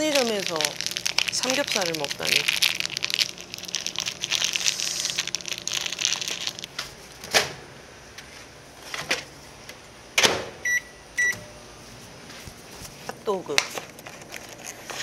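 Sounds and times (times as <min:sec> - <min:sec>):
plastic packaging crinkling: 0:00.0 - 0:07.1, 0:12.8 - 0:15.0
microwave keypad beeps: 0:10.6 - 0:11.5.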